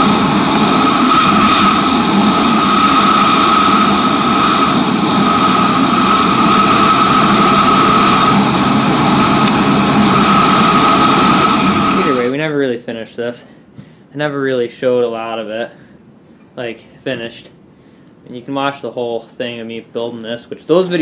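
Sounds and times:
tractor engine running: 0:00.0 - 0:12.2
wind rush: 0:00.0 - 0:12.3.

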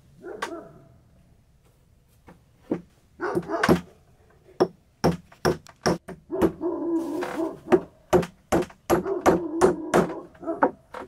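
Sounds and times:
hammer striking nails into wood: 0:02.7 - 0:03.9, 0:04.6 - 0:06.6, 0:07.7 - 0:11.0.

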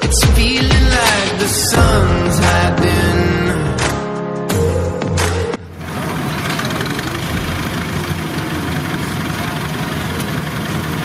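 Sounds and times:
diesel engine hum: 0:05.2 - 0:11.0
unloading auger mechanical noise: 0:05.7 - 0:11.0.

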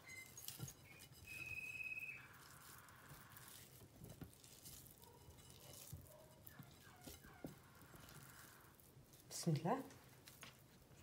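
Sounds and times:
high whistle-like tone: 0:00.0 - 0:02.4
hand squishing moist stuffing: 0:00.0 - 0:11.0.

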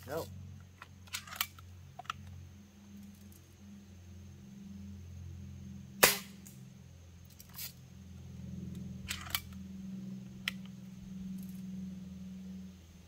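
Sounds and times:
air rifle shot crack: 0:06.0 - 0:06.4.

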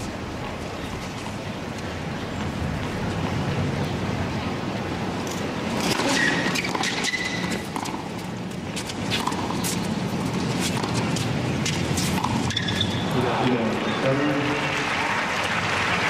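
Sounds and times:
stadium crowd noise: 0:00.0 - 0:16.0
racquet hitting tennis ball: 0:05.7 - 0:08.2, 0:08.8 - 0:13.0
shoe squeaks: 0:05.8 - 0:13.2.

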